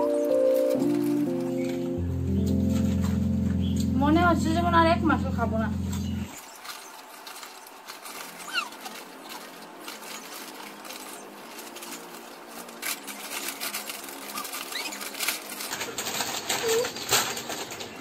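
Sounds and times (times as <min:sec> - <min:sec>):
plastic snack packets crinkling: 0:00.0 - 0:03.5, 0:06.3 - 0:18.0.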